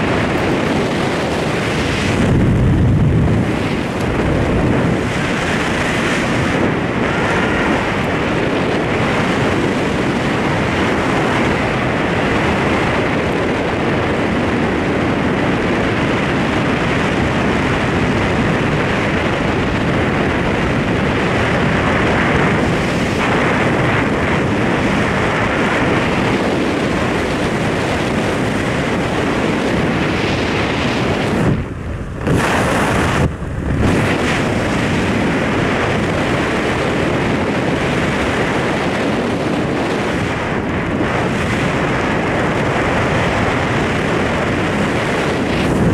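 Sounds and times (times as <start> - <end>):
wind buffeting microphone: 0.0 - 45.9.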